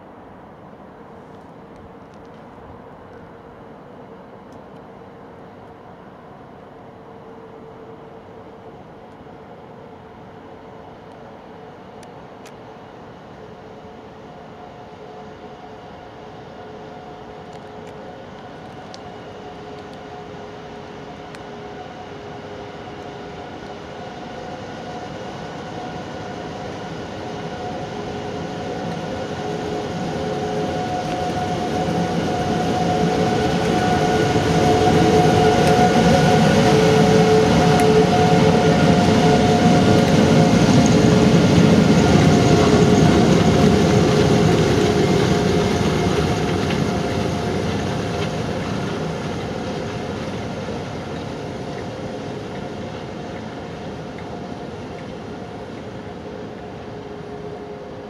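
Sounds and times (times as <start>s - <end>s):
electric locomotive whine: 0.0s - 58.0s
wheels rumbling on rail: 0.0s - 58.0s.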